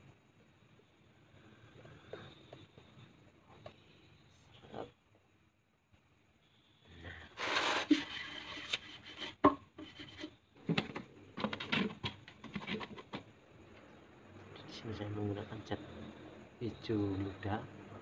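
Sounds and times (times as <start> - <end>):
table scraping on tiled floor: 7.4 - 13.2.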